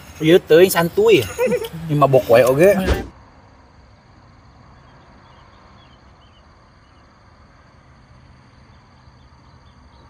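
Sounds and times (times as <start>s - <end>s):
insects trilling: 0.0s - 10.0s
bird chirping: 4.6s - 7.2s, 8.5s - 10.0s.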